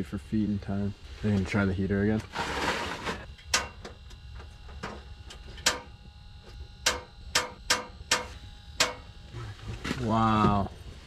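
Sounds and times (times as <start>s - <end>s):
heater igniter clicking: 4.8s - 6.0s, 6.8s - 9.0s.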